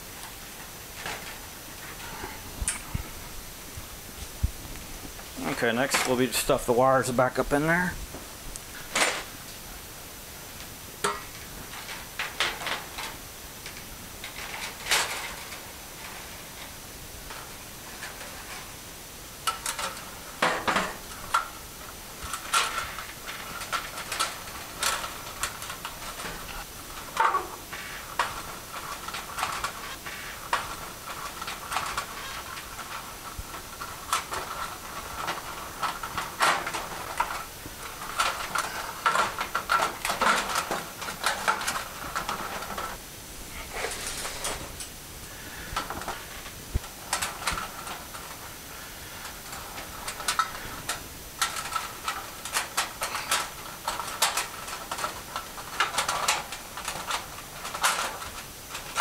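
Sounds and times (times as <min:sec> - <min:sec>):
metallic clicks and clatter: 0:22.2 - 0:43.0, 0:49.2 - 0:59.0.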